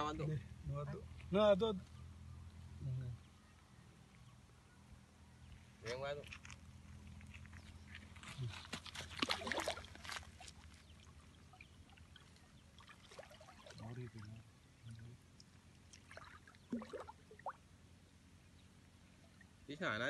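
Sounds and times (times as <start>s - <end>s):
water lapping: 8.5s - 17.8s
water splashing: 8.9s - 17.8s.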